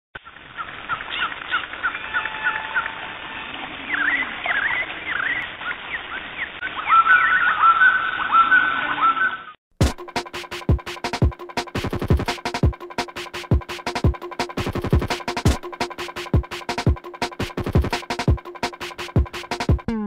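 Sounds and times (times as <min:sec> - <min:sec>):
bird-like chirping calls: 0:00.2 - 0:09.6.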